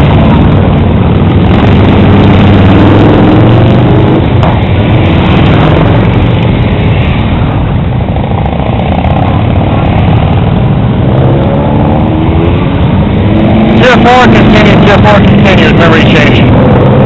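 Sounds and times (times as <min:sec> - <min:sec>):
motorcycles riding past: 0:00.0 - 0:15.7.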